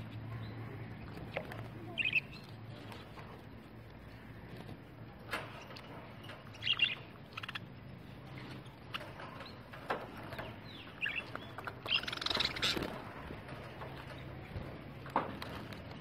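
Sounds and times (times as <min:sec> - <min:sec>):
budgerigars chirping: 0:06.5 - 0:07.8, 0:10.4 - 0:12.9.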